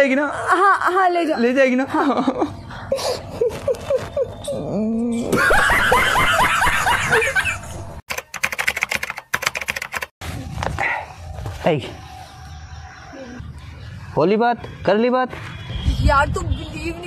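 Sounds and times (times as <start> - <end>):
laughter in rhythmic bursts: 1.9 - 4.3, 5.3 - 7.8
rapid sharp clicks: 8.1 - 10.1.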